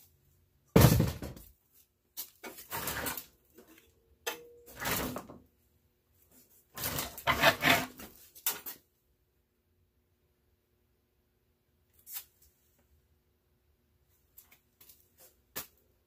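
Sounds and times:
loud knock on metal case: 0.8s - 1.4s
metal panels scraping and rattling: 2.4s - 3.4s, 4.7s - 5.4s, 6.7s - 8.7s.

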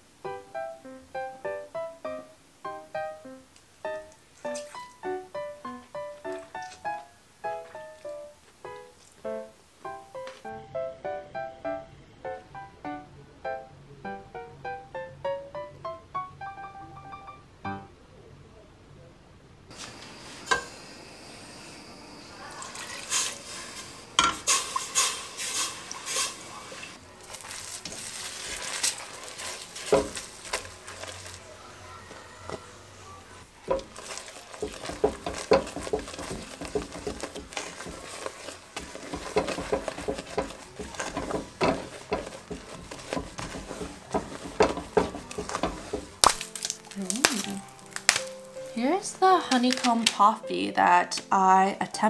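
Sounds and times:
sugar bubbling with light sizzle: 2.2s - 10.4s, 19.7s - 32.7s, 33.4s - 49.8s
spatula stirring and scraping pot: 22.7s - 31.5s, 33.4s - 46.3s.

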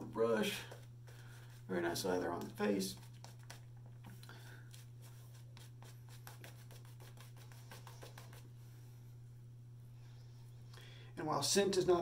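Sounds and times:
steady low hum: 0.0s - 12.0s
shaving brush scratchy strokes: 0.7s - 3.7s, 4.7s - 8.5s.

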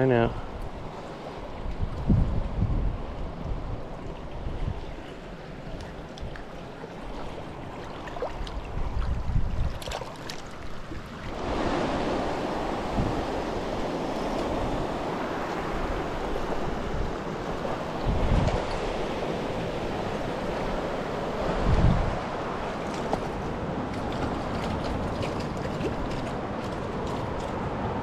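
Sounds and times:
wind buffeting microphone: 0.0s - 5.0s, 8.2s - 10.0s, 10.6s - 28.0s
water rushing over rocks: 9.6s - 28.0s.

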